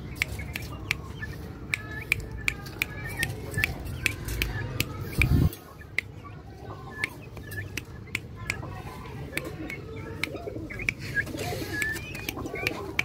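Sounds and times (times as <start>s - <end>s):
sharp clicks: 0.0s - 6.2s, 6.9s - 13.0s
chicks chirping: 0.0s - 13.0s
chicken clucking: 0.1s - 13.0s.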